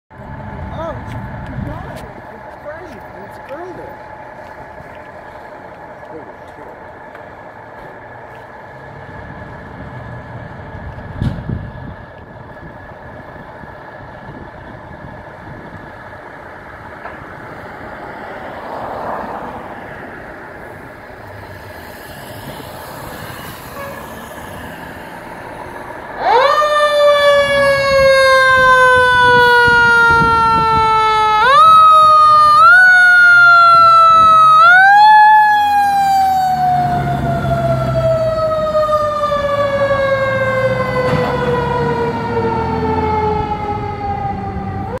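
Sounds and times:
fire engine idling: 0.2 - 18.7
loud siren wailing: 21.0 - 45.0.

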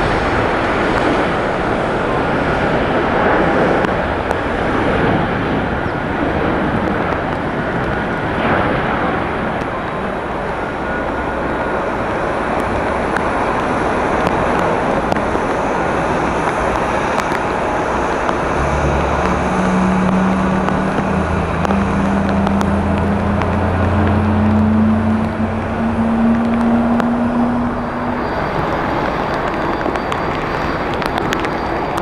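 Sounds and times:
jet engines and tyre spray: 0.0 - 32.0
low steady hum: 17.0 - 29.6.

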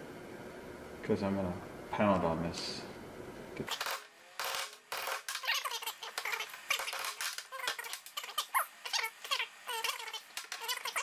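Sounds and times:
high chirpy squeaks: 5.0 - 11.0.

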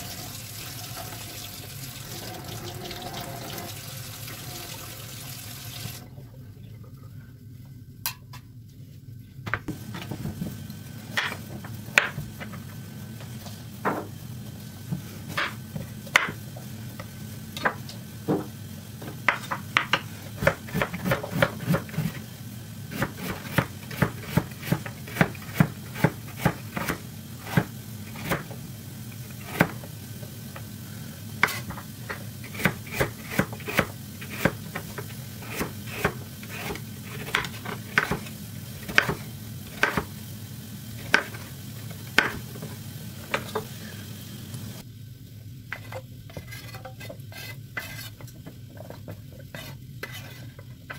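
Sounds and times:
knife chopping on wooden board: 35.5 - 38.3.

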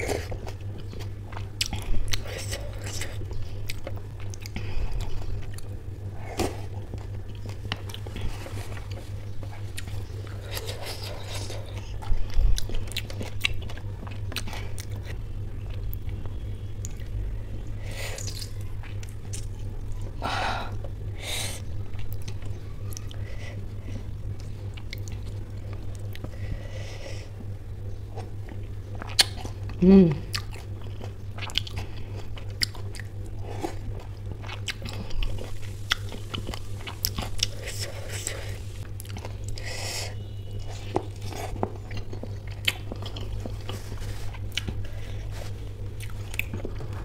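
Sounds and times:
chewing and biting food: 0.0 - 21.0, 21.8 - 26.4, 27.4 - 47.0
steady low hum: 0.0 - 47.0
food crunches: 28.3 - 39.6, 40.6 - 47.0.

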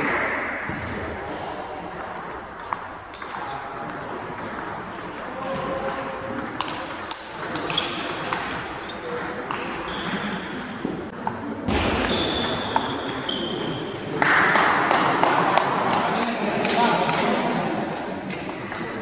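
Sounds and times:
table tennis balls clicking: 1.8 - 11.4
short high squeaks: 9.8 - 10.4.

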